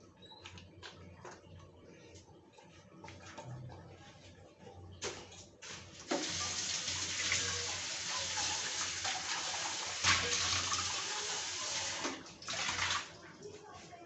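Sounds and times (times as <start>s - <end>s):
tap water running into sink: 5.6s - 13.2s.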